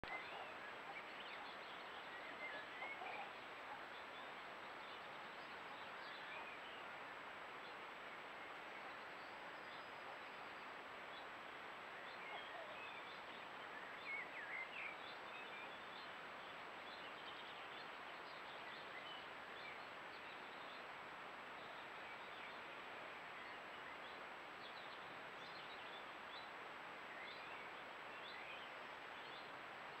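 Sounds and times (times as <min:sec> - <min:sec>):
microphone hiss: 0:00.0 - 0:30.0
songbirds chirping: 0:00.0 - 0:30.0.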